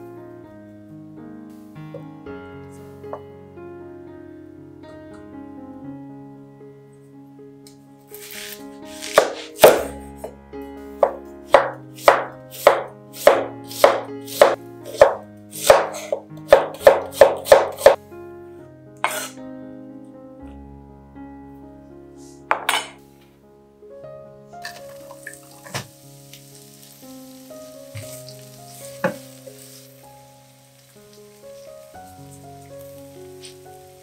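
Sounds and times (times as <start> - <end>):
knife strikes on wooden board: 9.0 - 10.0, 11.0 - 18.0.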